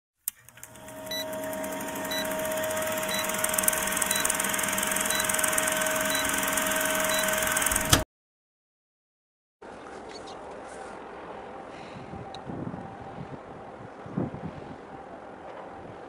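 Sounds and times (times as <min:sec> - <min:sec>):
film projector whirring: 0:00.3 - 0:08.0
short high beep: 0:06.0 - 0:06.4.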